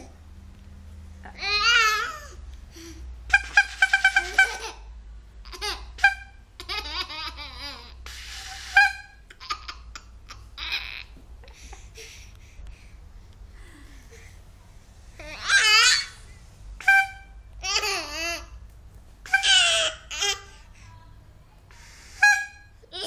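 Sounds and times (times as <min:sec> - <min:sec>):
baby laughing: 0:03.3 - 0:11.6, 0:16.8 - 0:18.5.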